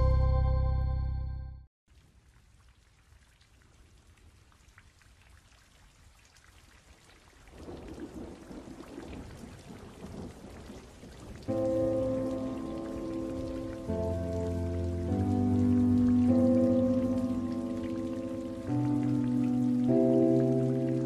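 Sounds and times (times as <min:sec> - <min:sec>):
soft music: 0:00.0 - 0:01.7, 0:11.5 - 0:21.0
rain falling: 0:01.9 - 0:21.0
low thunder rumble: 0:07.6 - 0:20.9.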